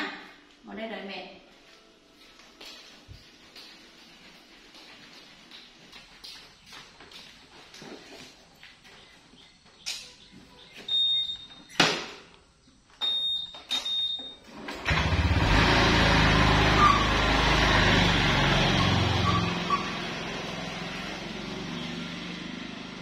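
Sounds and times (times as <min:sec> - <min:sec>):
scooter engine running: 0:14.5 - 0:23.0.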